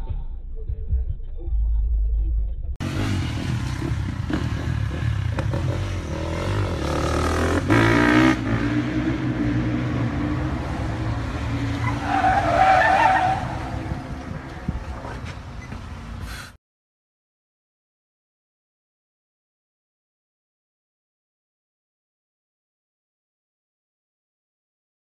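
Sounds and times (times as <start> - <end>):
car engine revving: 2.8 - 15.3
tyre squeal: 11.7 - 14.1, 15.1 - 16.5.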